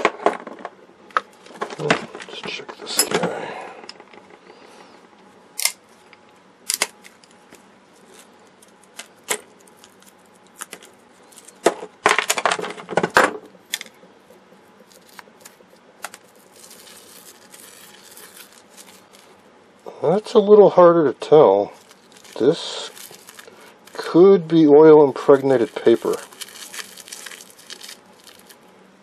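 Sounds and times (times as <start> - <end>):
plastic crunching: 0.0 - 3.4, 8.0 - 14.0, 14.8 - 19.4, 21.7 - 28.7
foil crinkling: 8.0 - 12.7, 14.8 - 19.4, 21.7 - 28.7.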